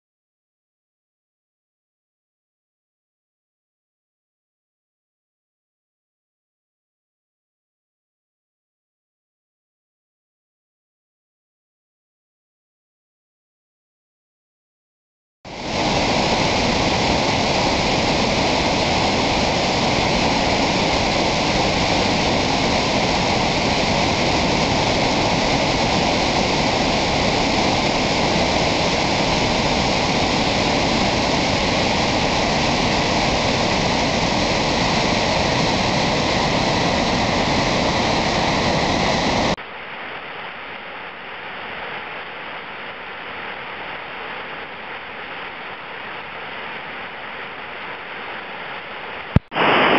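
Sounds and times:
water rushing over dam spillway: 15.5s - 49.9s
waterfall over rock ledges: 15.5s - 49.9s.

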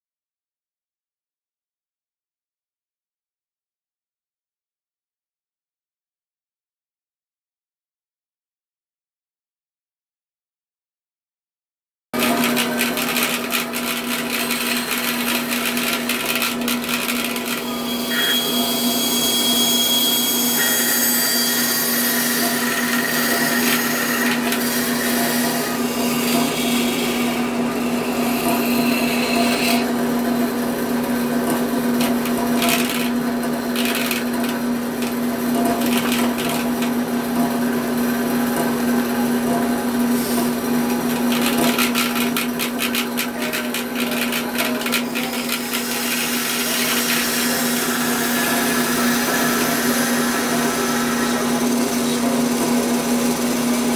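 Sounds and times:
high sawing noise: 12.2s - 30.1s, 43.0s - 53.9s
bandsaw motor hum: 12.2s - 53.9s.

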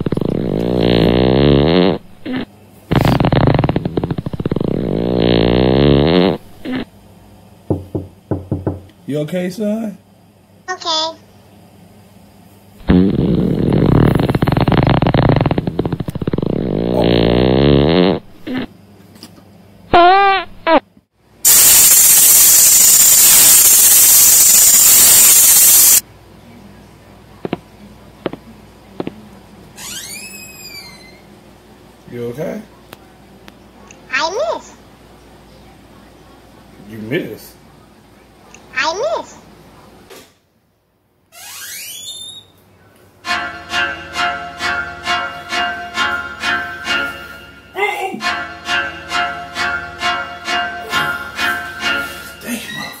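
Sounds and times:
child farting: 0.0s - 6.9s, 12.8s - 18.7s, 19.9s - 20.9s, 21.5s - 26.0s
loud steady hiss: 21.4s - 26.0s.

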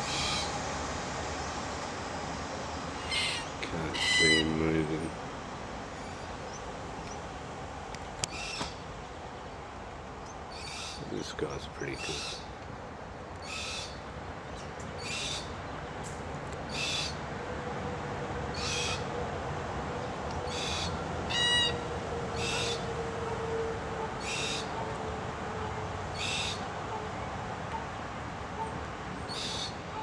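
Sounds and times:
cockatoo calling: 3.0s - 4.6s, 18.5s - 19.1s, 20.5s - 22.9s, 24.0s - 25.0s, 25.6s - 27.9s.

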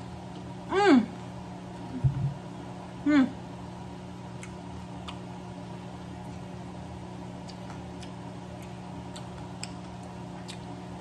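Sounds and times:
low hum: 0.0s - 4.5s
chewing and lip smacking: 7.4s - 10.8s.

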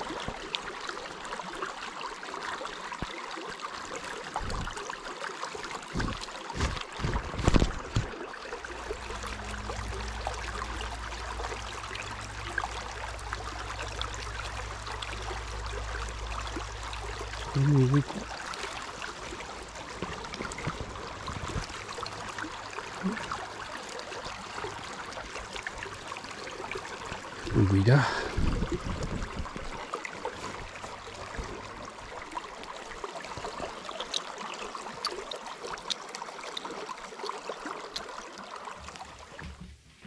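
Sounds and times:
stream rushing over riffles: 0.0s - 39.5s
low steady rumble: 8.6s - 32.7s
short pitched sound: 8.8s - 12.2s.

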